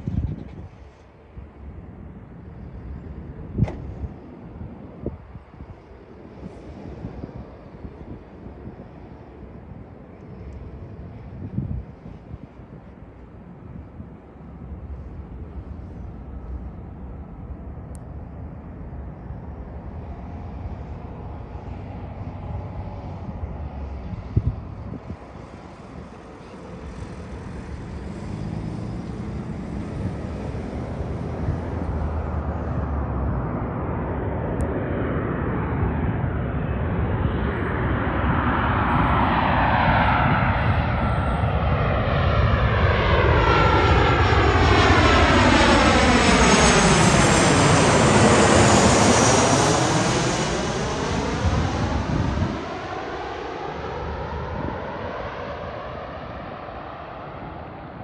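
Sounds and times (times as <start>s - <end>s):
jet engines on approach: 0.0s - 58.0s
swirling whoosh of passing jet: 20.0s - 58.0s.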